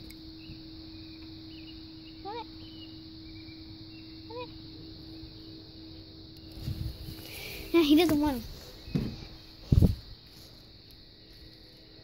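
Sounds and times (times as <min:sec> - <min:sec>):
faint high chirps: 0:00.0 - 0:07.9
insect drone: 0:00.0 - 0:12.0
low hum: 0:00.0 - 0:12.0.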